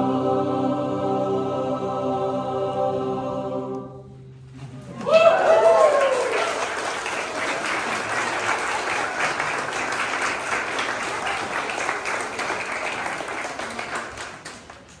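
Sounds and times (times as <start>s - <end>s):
choir clapping: 4.8s - 15.0s.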